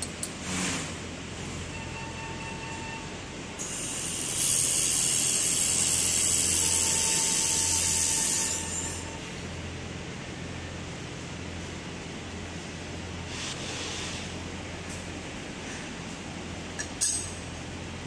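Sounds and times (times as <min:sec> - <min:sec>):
laser welding torch hiss: 0:03.6 - 0:08.6.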